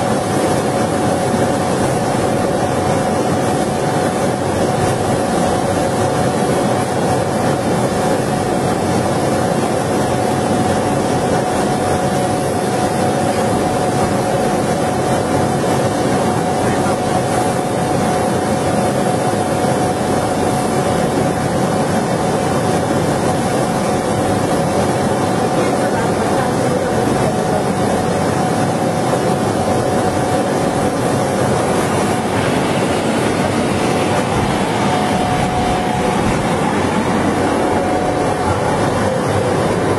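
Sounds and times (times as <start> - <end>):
laser cutting machine running: 0.0 - 39.9
mid-pitched hum: 0.0 - 39.9
steady rushing noise: 0.0 - 39.9
exhaust blowers rushing air: 29.2 - 39.9.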